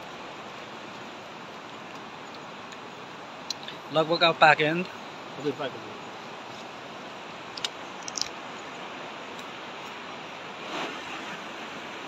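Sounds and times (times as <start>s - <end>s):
river rushing over rocks: 0.0s - 12.0s
sharp clicks: 7.5s - 8.4s.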